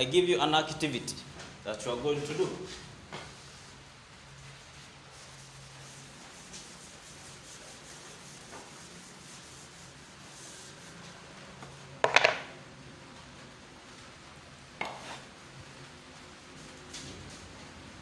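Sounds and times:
chalkboard being wiped: 2.2 - 3.8, 4.4 - 11.9, 14.8 - 15.3.

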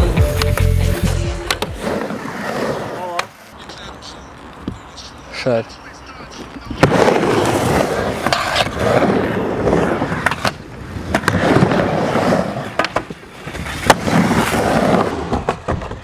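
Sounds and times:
skateboard rolling on wooden ramp: 0.3 - 3.5, 6.7 - 16.0
skateboard clacking on ramp: 15.1 - 16.0.

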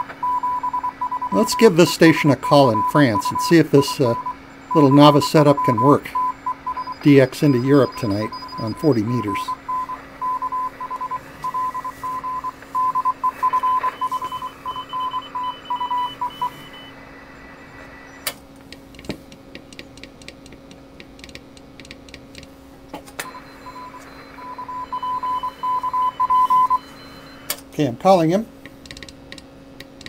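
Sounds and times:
morse code tone: 0.0 - 17.0, 23.2 - 27.5
radio band hiss: 6.8 - 14.7.

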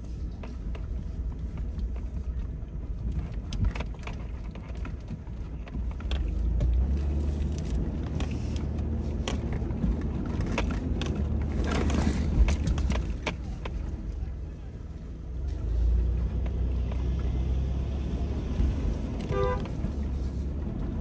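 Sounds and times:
vehicle engine and road rumble: 0.0 - 21.0
knocks and rattles from bumps: 0.4 - 14.2.

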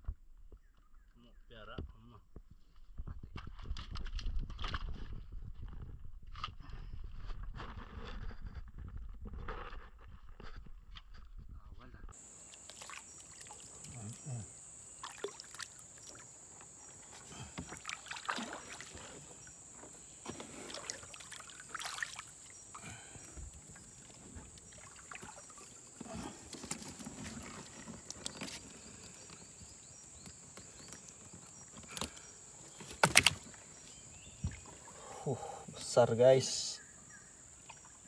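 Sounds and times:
water splashing: 12.2 - 29.4, 32.8 - 33.8.

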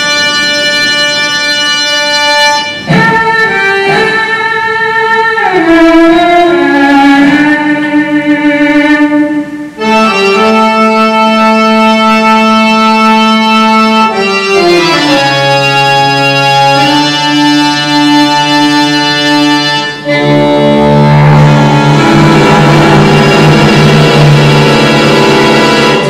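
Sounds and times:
button accordion chords: 0.0 - 26.0
bowed cello: 9.8 - 26.0.

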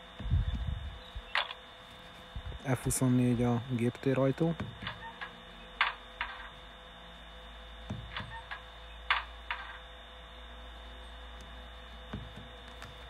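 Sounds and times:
steady electric hum: 0.0 - 13.0
sharp clicks and knocks: 4.5 - 6.6, 7.9 - 9.8.

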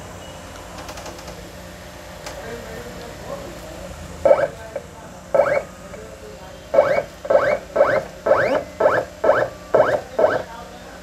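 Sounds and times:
cutting plotter motors whirring: 2.6 - 11.0.

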